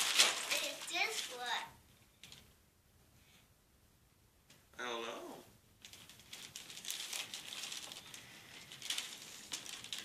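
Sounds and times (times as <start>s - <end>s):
paper bag rustling: 0.0s - 1.7s, 5.8s - 10.0s.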